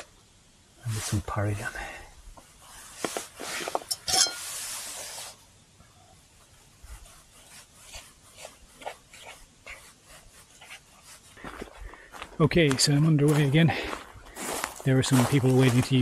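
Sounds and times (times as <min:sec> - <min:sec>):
short hiss: 0:02.7 - 0:05.6.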